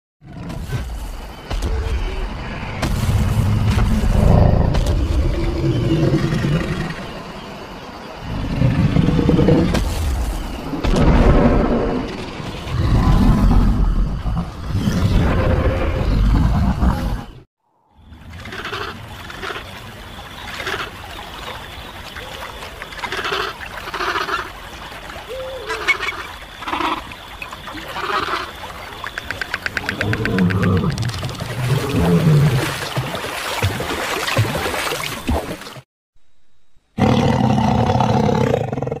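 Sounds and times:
dinosaur growls and roars: 0:03.6 - 0:07.0, 0:08.2 - 0:09.8, 0:10.9 - 0:17.4, 0:37.0 - 0:39.0
trickling water: 0:18.0 - 0:35.8.

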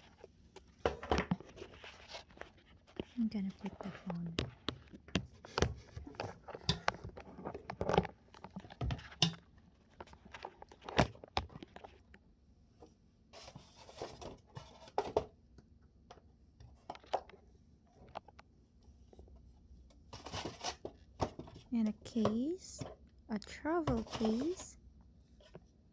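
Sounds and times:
rustling scrape of foam packing: 0:01.4 - 0:03.2.

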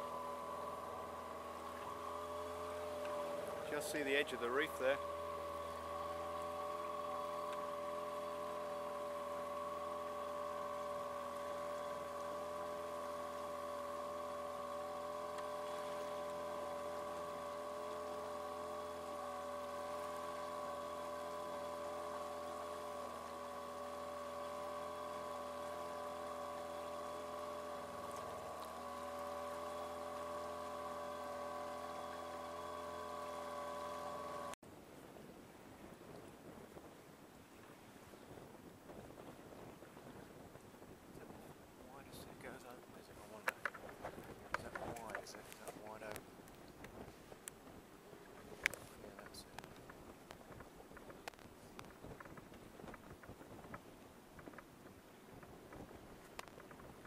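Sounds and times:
outboard motor humming: 0:00.0 - 0:57.0.

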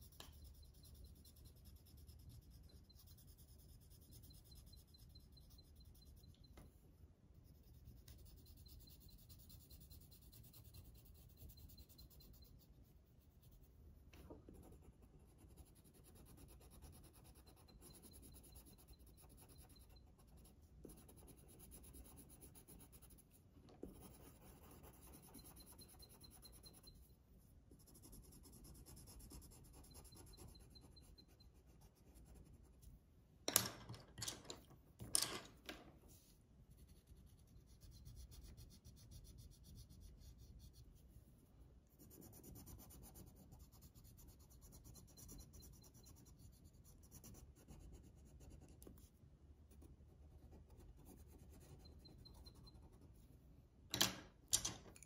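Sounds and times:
pencil scratching on paper: 0:00.0 - 0:06.8, 0:07.4 - 0:33.0, 0:36.1 - 0:53.3
pencils clacking: 0:53.9 - 0:55.0.

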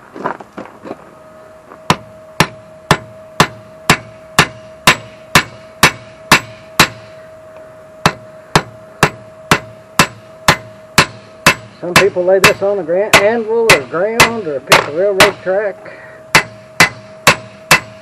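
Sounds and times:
sledgehammer striking steel rivets: 0:01.9 - 0:07.1, 0:08.1 - 0:15.5, 0:16.3 - 0:18.0.

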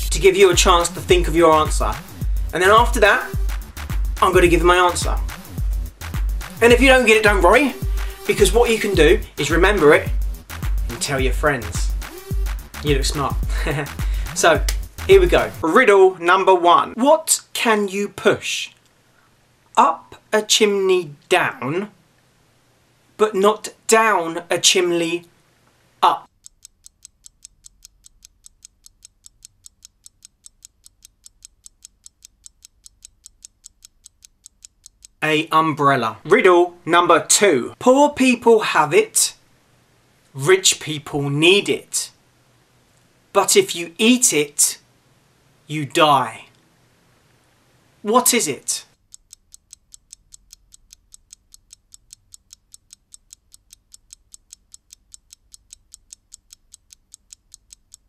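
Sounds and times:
clock ticking fast: 0:00.0 - 0:15.6, 0:26.2 - 0:35.2, 0:49.0 - 0:58.0.

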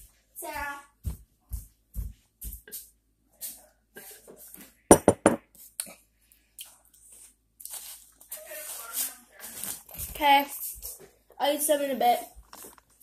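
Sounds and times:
sharp knocks and clatter: 0:04.9 - 0:05.4.

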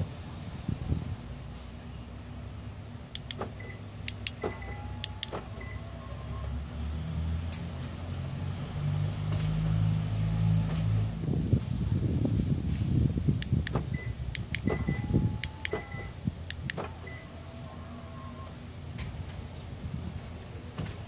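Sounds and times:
power window motors humming: 0:03.0 - 0:06.8, 0:13.4 - 0:21.0
car door locks clicking: 0:03.2 - 0:05.7, 0:13.4 - 0:17.2.

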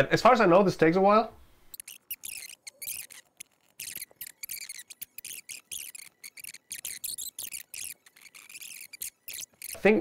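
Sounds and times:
keyboard and mouse clicking: 0:01.8 - 0:09.8.

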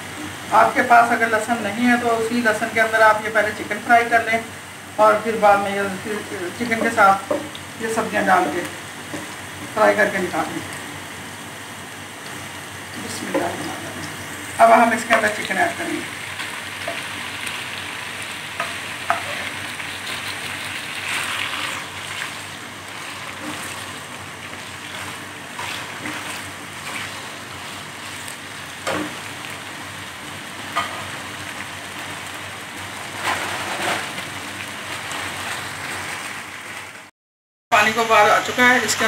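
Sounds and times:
chicken sizzling in hot oil: 0:03.3 - 0:37.1
wooden spatula scraping a pan: 0:18.6 - 0:29.2, 0:33.1 - 0:34.2.

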